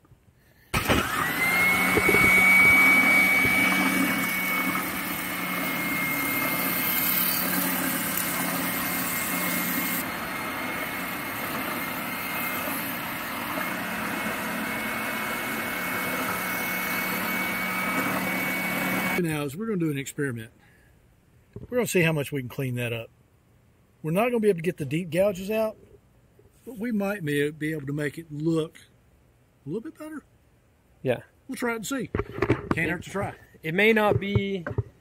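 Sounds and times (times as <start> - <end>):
spindle sander motor whine: 0.8 - 19.2
sanding drum rubbing metal: 2.5 - 10.0.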